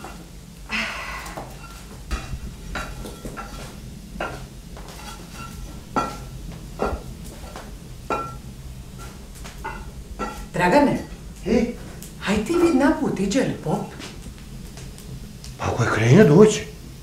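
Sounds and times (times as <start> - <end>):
scraping rustle: 1.4 - 12.8.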